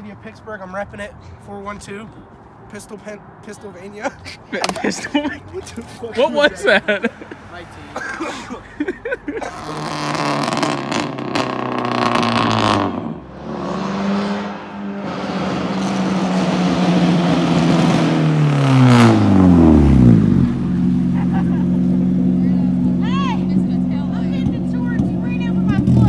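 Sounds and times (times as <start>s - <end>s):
car engine accelerating and passing: 9.4s - 26.0s.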